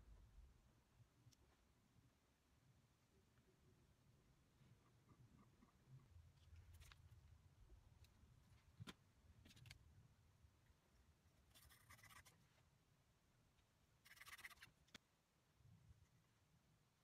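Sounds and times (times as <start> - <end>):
pencil scratching on wood: 11.5 - 12.4, 14.0 - 14.7.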